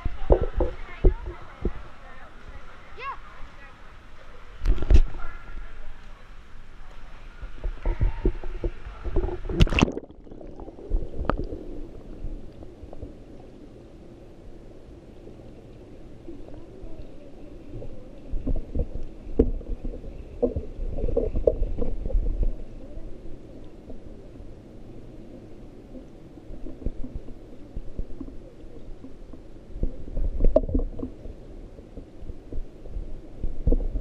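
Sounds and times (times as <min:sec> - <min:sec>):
underwater knocks: 0:00.0 - 0:01.8, 0:07.4 - 0:11.6, 0:18.3 - 0:22.6, 0:29.0 - 0:31.4
muffled underwater gurgling: 0:06.9 - 0:14.0, 0:15.3 - 0:34.0
camera splashing into water: 0:09.5 - 0:10.2.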